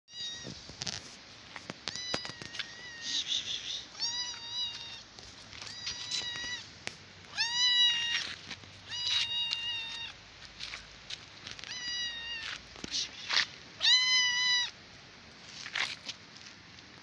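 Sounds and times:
kitten meowing: 0:00.1 - 0:00.6, 0:01.9 - 0:05.0, 0:05.6 - 0:06.6, 0:07.3 - 0:10.2, 0:11.6 - 0:12.6, 0:13.8 - 0:14.7.

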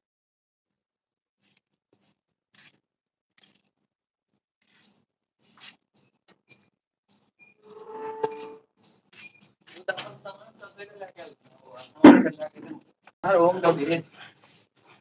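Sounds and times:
faint scuffs and rustles: 0:04.6 - 0:07.3, 0:13.3 - 0:15.0.

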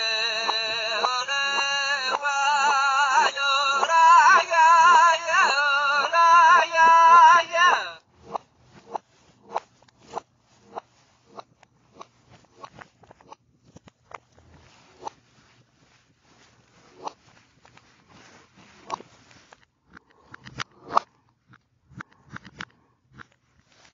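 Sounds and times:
high voice singing warbling: 0:00.0 - 0:08.0.

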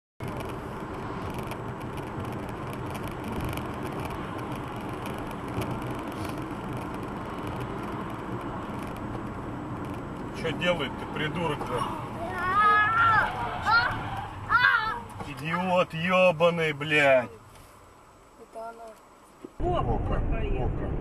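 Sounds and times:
car engine and road noise: 0:00.2 - 0:21.0
faint light ticks: 0:18.8 - 0:19.6.

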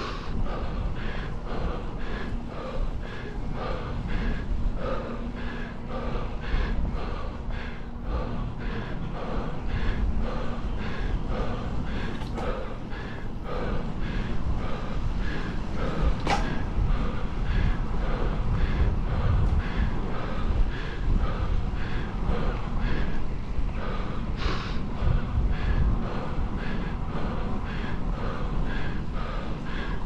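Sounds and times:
cyclist panting: 0:00.0 - 0:30.0
low rumble: 0:00.0 - 0:30.0
sharp click: 0:16.2 - 0:16.6.

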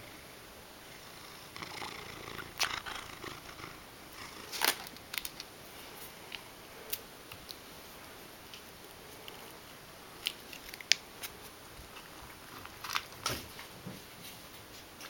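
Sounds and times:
cat purring: 0:00.0 - 0:05.0, 0:11.2 - 0:14.0.

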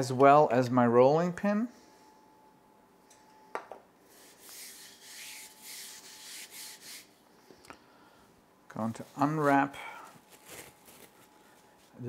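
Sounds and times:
hands brushing rolling pin: 0:04.1 - 0:07.1.

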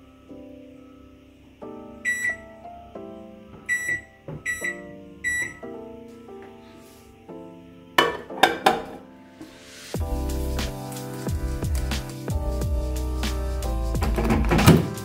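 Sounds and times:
oven keypad beeps: 0:02.0 - 0:02.6, 0:03.7 - 0:05.7.

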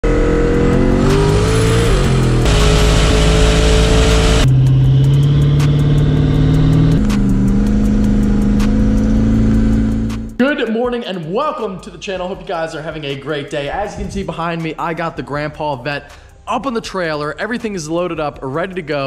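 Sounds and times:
car engine accelerating: 0:00.0 - 0:10.4
music with steady beat: 0:01.0 - 0:19.0.

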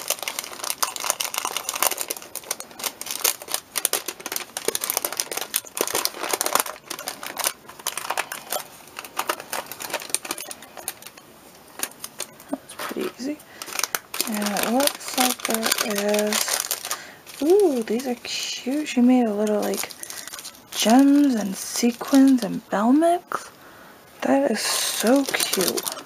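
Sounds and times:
treat bag crinkling: 0:00.0 - 0:23.5, 0:24.2 - 0:26.0.

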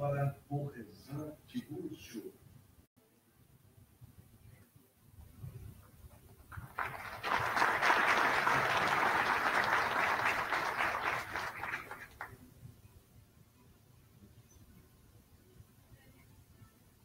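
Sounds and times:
audience applauding: 0:06.5 - 0:12.4.

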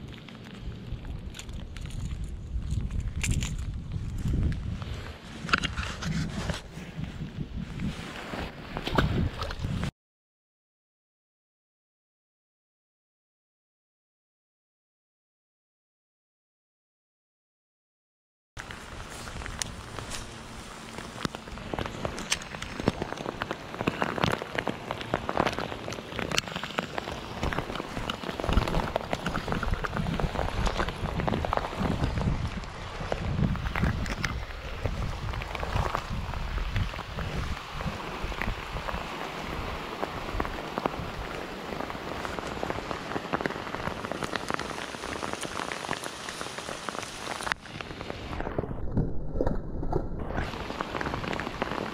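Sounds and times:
rain falling: 0:18.6 - 0:48.7, 0:50.3 - 0:51.9
close raindrop hits: 0:18.6 - 0:51.9.

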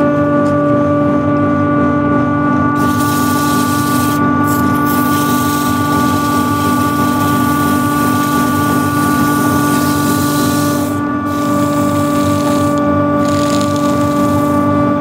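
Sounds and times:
lathe motor whine: 0:02.7 - 0:15.0
sanding hiss on spinning wood: 0:02.8 - 0:14.6.

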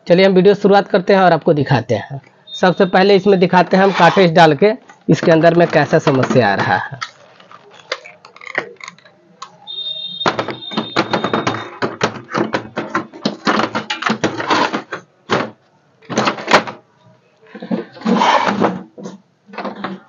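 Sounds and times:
plastic clicks and knocks: 0:04.8 - 0:09.6, 0:10.2 - 0:16.9, 0:17.6 - 0:20.0.

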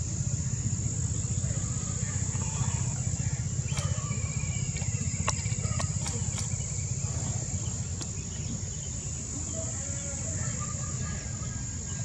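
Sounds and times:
crickets droning: 0:00.0 - 0:12.0
faint clicks and chirps: 0:03.6 - 0:09.0.

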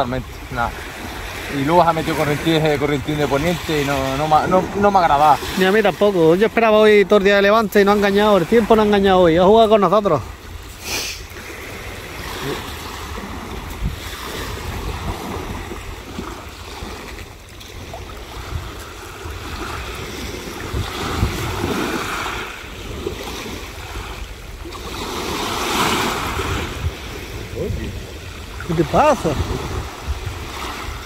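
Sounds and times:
sea surf washing onto beach: 0:00.0 - 0:31.0
wind buffeting microphone: 0:00.0 - 0:31.0.

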